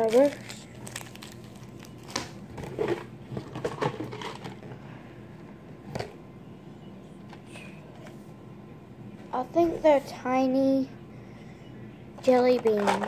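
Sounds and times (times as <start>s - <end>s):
candy wrapper and box crinkling: 0.0s - 4.6s.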